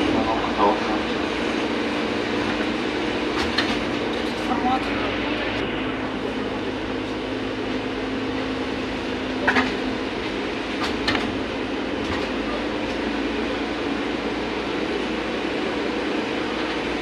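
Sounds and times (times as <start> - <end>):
trolleybus cabin rolling noise: 0.0 - 17.0.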